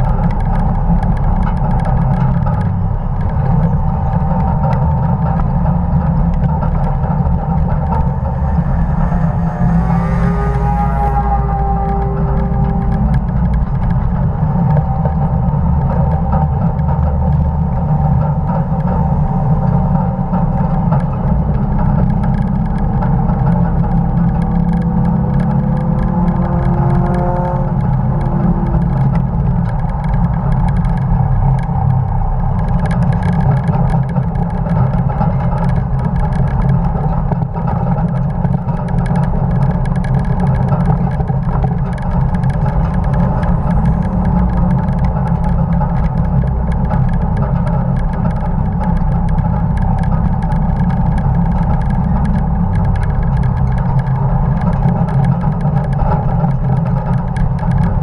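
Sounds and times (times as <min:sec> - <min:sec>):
race car engine running hard: 0:00.0 - 0:58.0
wind and road noise: 0:00.0 - 0:58.0
faint rising tone: 0:06.9 - 0:14.2.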